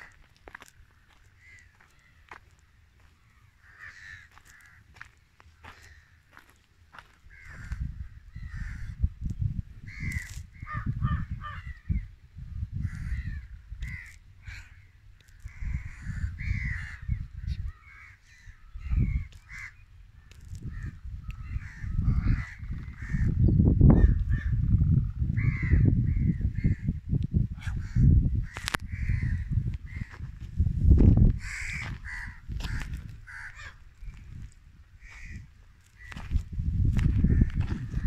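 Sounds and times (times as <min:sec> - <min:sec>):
birds calling: 0:00.0 - 0:09.0, 0:12.7 - 0:26.9, 0:31.4 - 0:36.4
wind buffeting microphone: 0:03.0 - 0:38.0.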